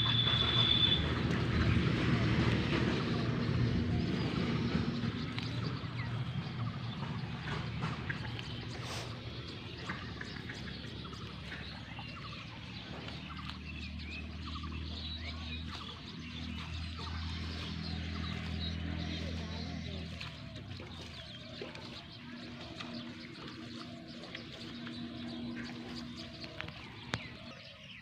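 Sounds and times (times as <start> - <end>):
low hum: 0.0 - 27.6
small birds chirping: 0.0 - 28.0.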